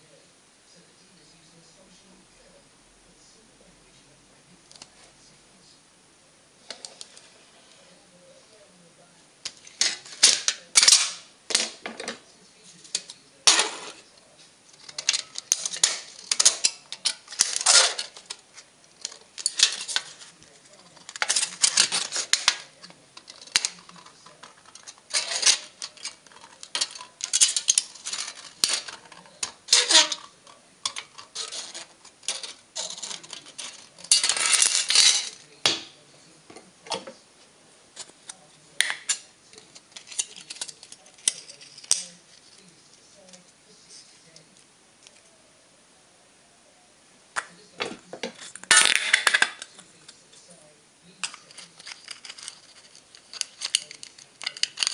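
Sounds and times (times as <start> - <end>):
metal crinkling and rattling: 9.5 - 35.8, 38.0 - 42.7, 51.0 - 54.9.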